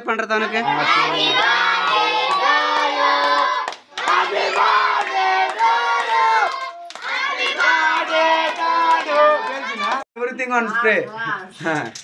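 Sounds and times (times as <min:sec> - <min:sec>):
children singing: 0:00.6 - 0:09.9
hand claps: 0:01.8 - 0:10.1.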